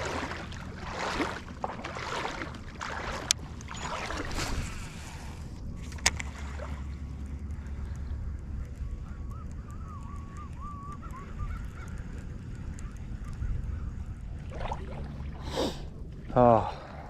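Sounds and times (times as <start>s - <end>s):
reel bail clicks: 5.8s - 6.4s.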